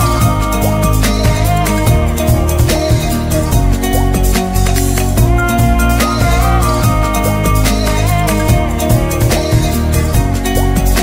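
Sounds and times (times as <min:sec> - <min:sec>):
pop music with heavy bass: 0:00.0 - 0:11.0.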